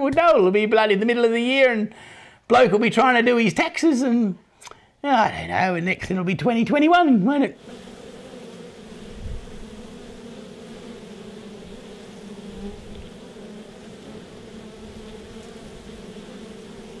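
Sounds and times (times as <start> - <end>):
bees buzzing: 7.6 - 17.0.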